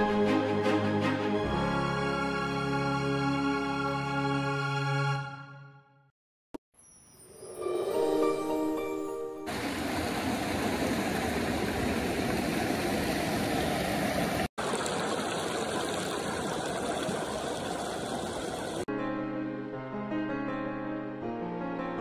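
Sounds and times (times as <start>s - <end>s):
music: 0.0s - 6.1s, 7.5s - 9.5s, 18.9s - 22.0s
stream rushing over boulders: 9.5s - 18.9s.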